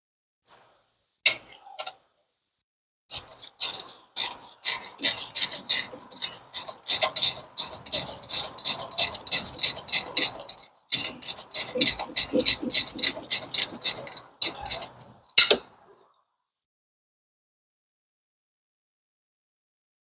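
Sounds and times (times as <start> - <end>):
ratchet wrench clicking: 3.1 - 14.6.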